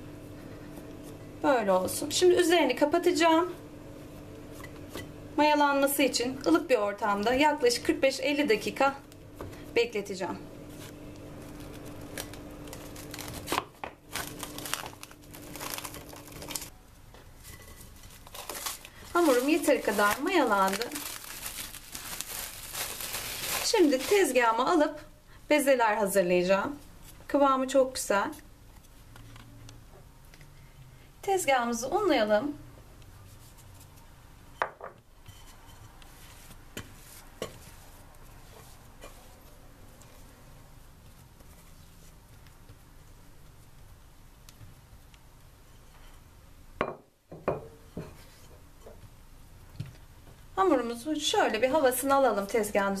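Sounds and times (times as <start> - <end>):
dough handling: 3.0 - 24.8, 35.4 - 45.1
cling film crinkling: 10.7 - 16.7, 17.4 - 24.5.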